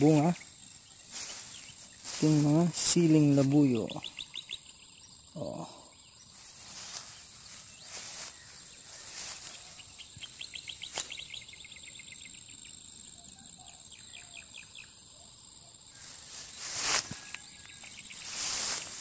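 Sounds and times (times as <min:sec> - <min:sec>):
footsteps through tall grass: 0:00.0 - 0:04.0, 0:06.3 - 0:11.4, 0:15.9 - 0:19.0
bird chirping: 0:00.0 - 0:19.0
high-pitched insect drone: 0:00.0 - 0:19.0.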